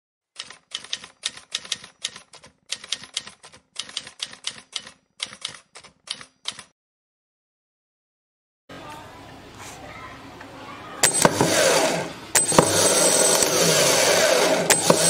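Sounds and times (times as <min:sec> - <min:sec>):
typewriter keys clacking: 0:00.4 - 0:06.7.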